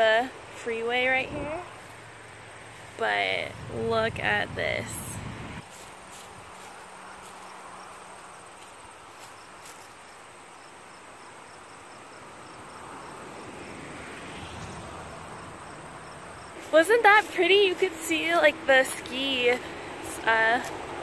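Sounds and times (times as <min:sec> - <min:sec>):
insects hissing and chirping: 0:01.0 - 0:03.2, 0:05.6 - 0:17.0.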